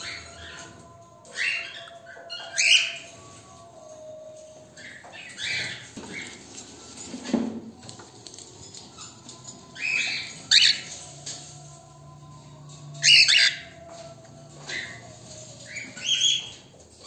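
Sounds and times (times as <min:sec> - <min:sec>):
cockatiels chirping: 0:00.0 - 0:03.4, 0:04.8 - 0:07.0, 0:08.3 - 0:11.4, 0:13.0 - 0:17.0.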